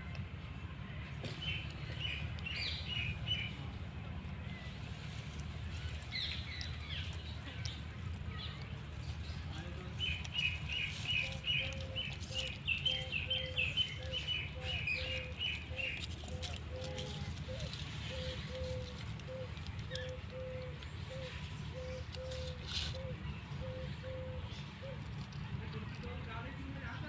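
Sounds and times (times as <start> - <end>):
low background rumble: 0.0 - 27.0.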